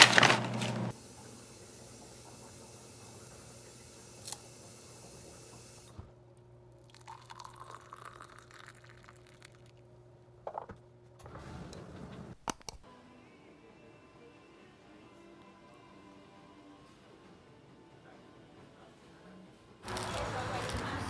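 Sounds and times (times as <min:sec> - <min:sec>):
water pouring into mug: 0:06.8 - 0:09.8.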